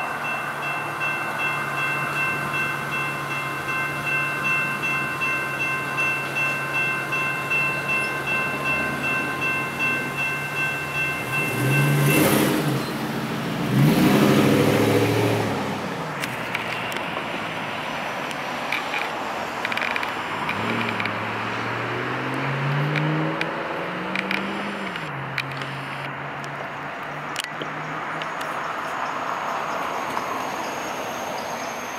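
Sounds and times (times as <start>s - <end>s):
electronic crossing bell ringing: 0.0s - 13.0s
vehicles passing by: 0.0s - 31.9s.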